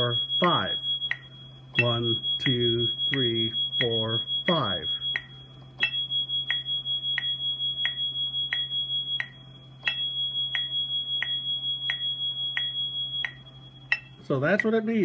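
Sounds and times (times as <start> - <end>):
metronome clicks: 7.2 - 14.8.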